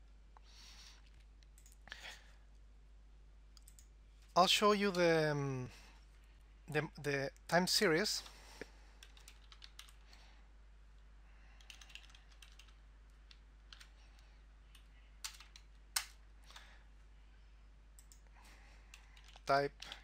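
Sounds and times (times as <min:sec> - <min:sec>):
computer keyboard key clicks: 0:11.6 - 0:13.9.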